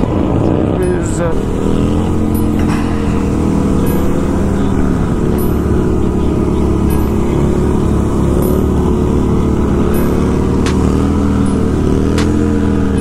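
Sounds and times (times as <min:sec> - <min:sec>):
motorcycle engines revving: 0:00.0 - 0:13.0
sharp ticks: 0:09.9 - 0:12.5.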